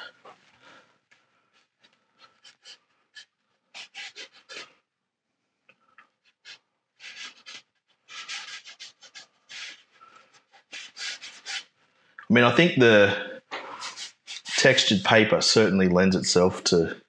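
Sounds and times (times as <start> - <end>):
dry brush rasping on paper: 1.6 - 4.9, 6.2 - 11.9, 13.7 - 15.3.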